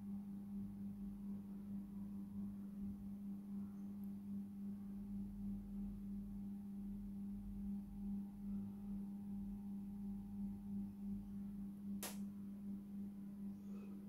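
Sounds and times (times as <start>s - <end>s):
steady low-pitched hum: 0.0s - 14.0s
sharp click: 12.0s - 12.3s.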